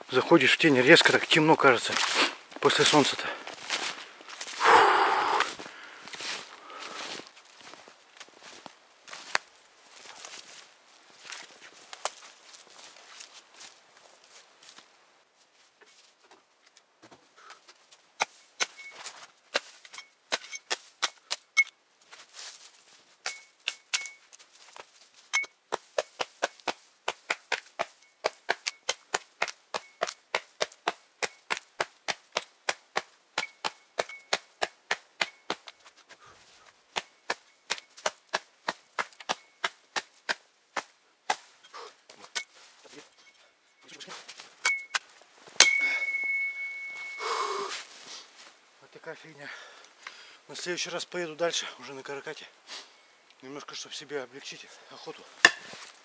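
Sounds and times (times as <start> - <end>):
footsteps crunching in snow: 0.6 - 16.4, 17.8 - 19.9, 22.0 - 23.2, 24.2 - 27.0, 43.8 - 45.6, 46.8 - 48.6.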